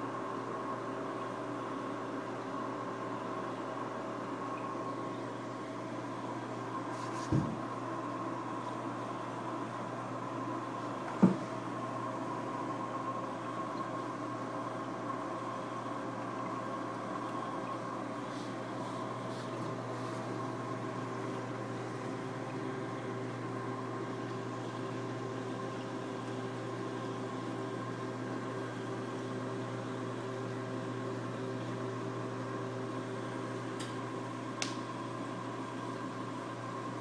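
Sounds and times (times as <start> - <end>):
aquarium pumps humming: 0.0 - 37.0.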